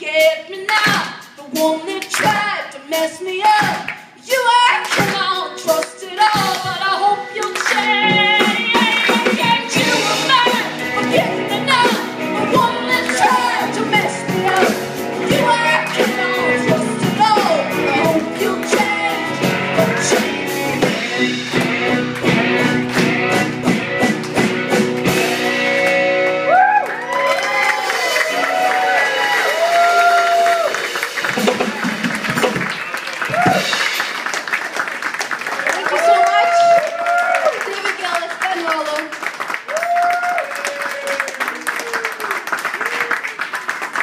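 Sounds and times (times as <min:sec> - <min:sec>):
woman singing: 0:00.0 - 0:21.0.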